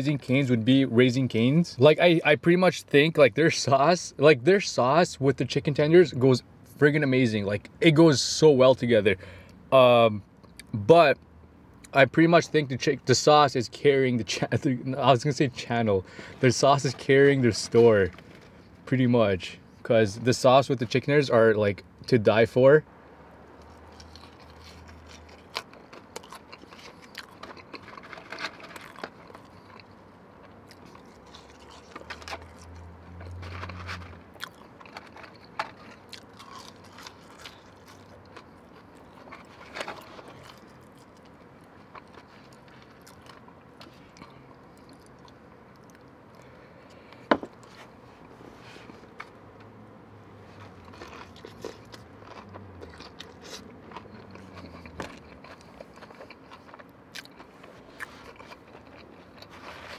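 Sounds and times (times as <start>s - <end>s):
chewing and biting food: 23.6s - 49.4s, 50.4s - 59.9s.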